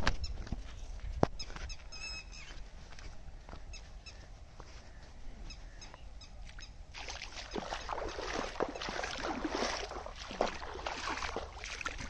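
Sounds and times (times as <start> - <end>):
birds chirping: 0.1 - 2.8, 3.4 - 6.9
water splashing and sloshing: 6.5 - 12.0.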